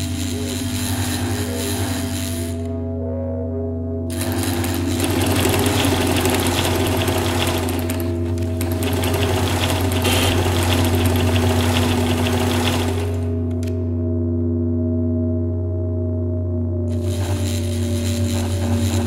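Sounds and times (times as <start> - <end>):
low electronic drone: 0.0 - 19.0
sewing machine running fast: 4.1 - 13.4, 17.0 - 19.0.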